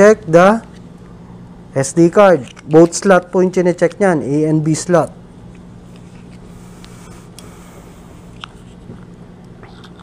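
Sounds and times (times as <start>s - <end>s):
low background hum: 0.0s - 10.0s.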